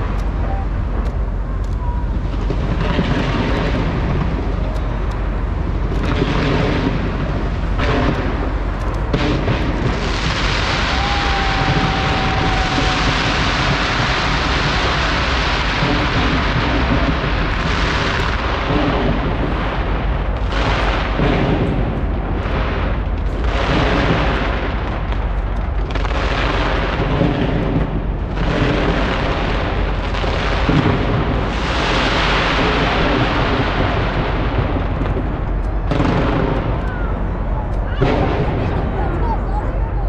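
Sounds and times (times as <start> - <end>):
fireworks booming and crackling: 0.0 - 40.0.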